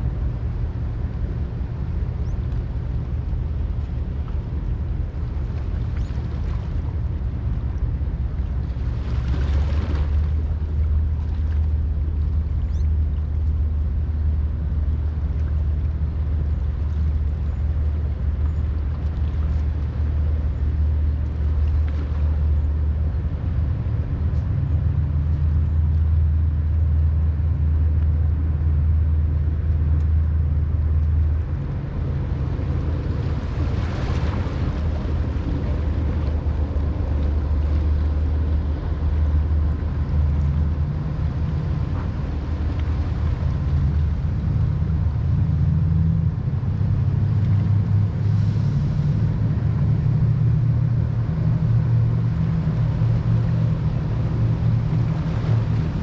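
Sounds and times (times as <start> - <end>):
boat engines rumbling: 0.0 - 56.0.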